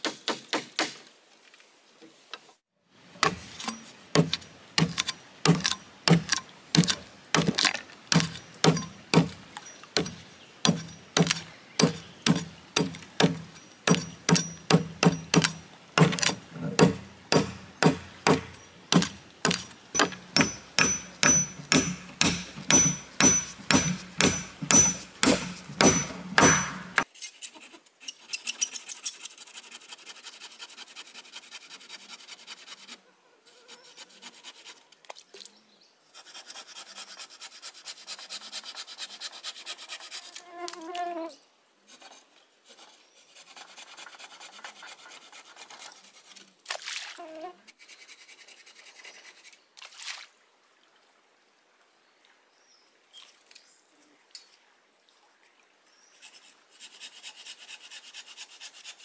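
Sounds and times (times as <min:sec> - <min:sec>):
tool striking wood: 0:03.2 - 0:09.4, 0:10.0 - 0:27.0.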